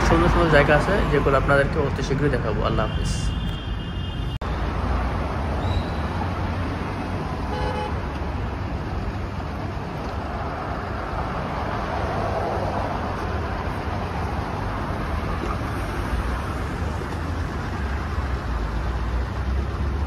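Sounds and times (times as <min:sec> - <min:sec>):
traffic rumble: 0:00.0 - 0:20.0
vehicle horn toot: 0:07.5 - 0:08.0.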